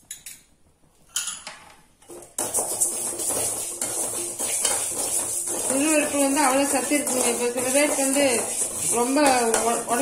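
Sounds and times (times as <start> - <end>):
ladle scraping around pan: 2.1 - 10.0.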